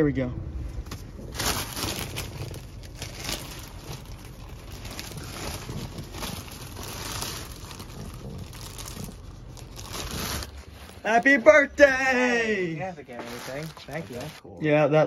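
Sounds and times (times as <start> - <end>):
low rumble: 0.0 - 11.8
plastic bag rustling: 1.0 - 11.7, 12.8 - 14.4.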